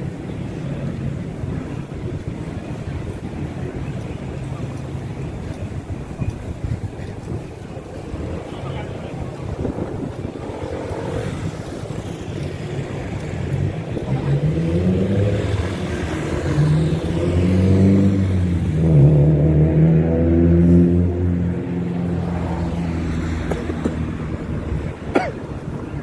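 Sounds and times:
vehicle engine passing: 0:08.7 - 0:24.5.

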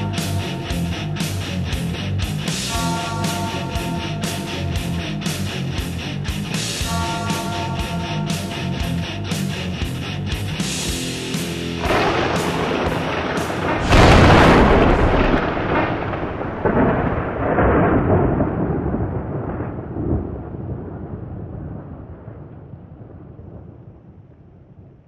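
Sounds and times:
loud boom: 0:00.0 - 0:01.5, 0:02.7 - 0:05.5, 0:06.8 - 0:09.0, 0:11.8 - 0:21.9
thunder-like rumble: 0:00.0 - 0:06.0, 0:11.8 - 0:25.0.

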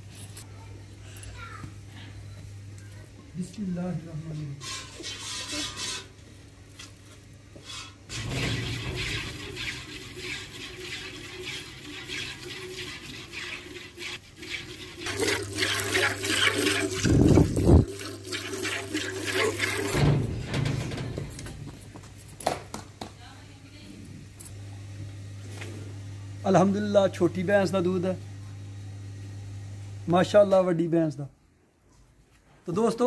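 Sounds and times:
milk squirting into steel bucket: 0:08.1 - 0:20.1.

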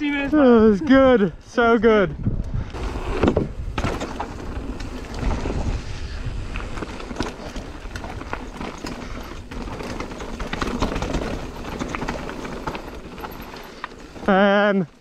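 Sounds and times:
wind rumble: 0:00.0 - 0:15.0
bike rattling: 0:02.6 - 0:15.0
tyres on loose stones: 0:06.4 - 0:15.0.

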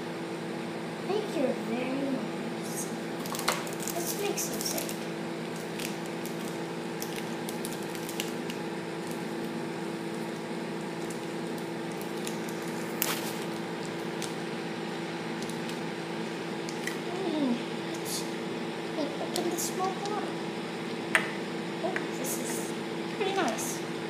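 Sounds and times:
steady background hum: 0:00.0 - 0:24.0
sand packets rustling and clicking: 0:03.2 - 0:09.6, 0:11.0 - 0:14.4.

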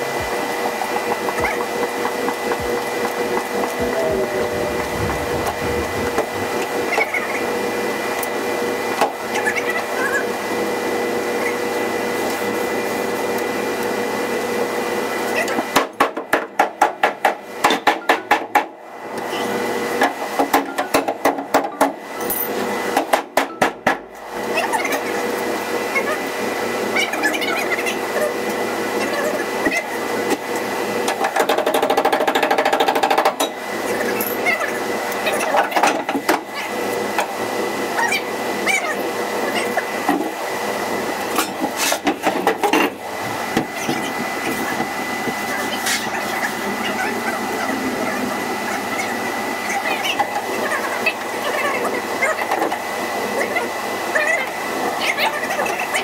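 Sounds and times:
steady noise: 0:03.7 - 0:07.0.

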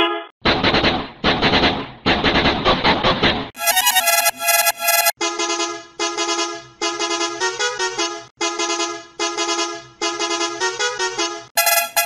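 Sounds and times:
musical bus horn playing a tune: 0:03.6 - 0:12.0.

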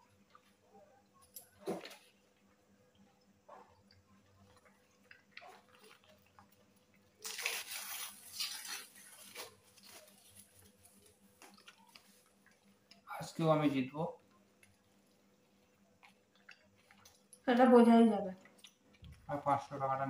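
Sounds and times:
people chewing: 0:00.1 - 0:20.0
paper crackling rustle: 0:07.2 - 0:12.3.

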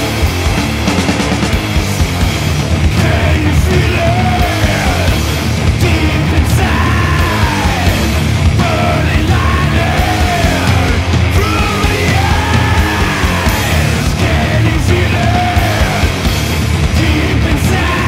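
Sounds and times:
stoner metal band playing: 0:00.0 - 0:18.0
swooping high guitar line: 0:00.0 - 0:18.0.

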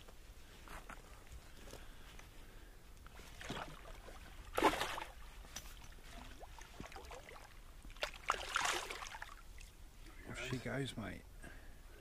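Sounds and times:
water sloshing and splashing: 0:03.1 - 0:09.8.

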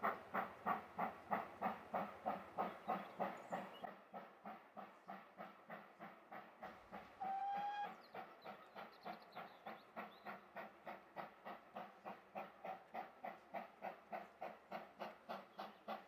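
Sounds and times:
steam locomotive exhaust beats: 0:00.0 - 0:16.0
steam whistle blast: 0:07.2 - 0:08.0.

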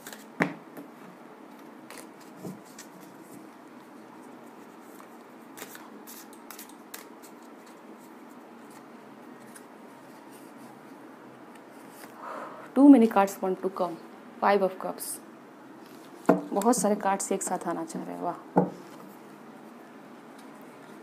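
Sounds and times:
cards being shuffled: 0:00.0 - 0:00.5, 0:01.5 - 0:10.7.

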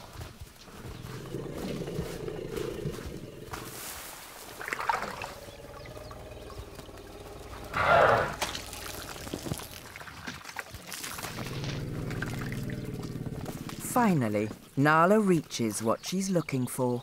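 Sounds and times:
elephants digging in dry sand: 0:00.0 - 0:09.9.

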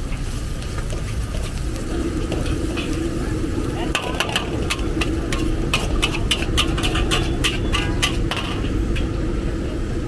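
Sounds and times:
low rumble: 0:01.5 - 0:07.0
metal spatula scraping a wok: 0:03.8 - 0:09.1.

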